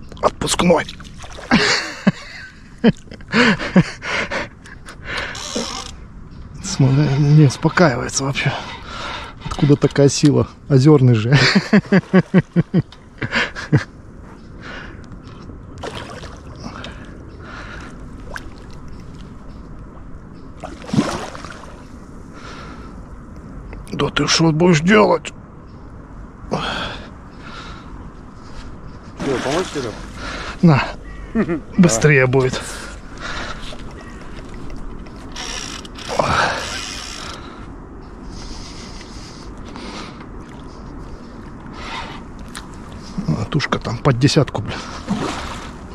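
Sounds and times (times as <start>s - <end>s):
fish thrashing in water: 20.6s - 21.8s, 29.2s - 30.1s, 45.0s - 45.9s.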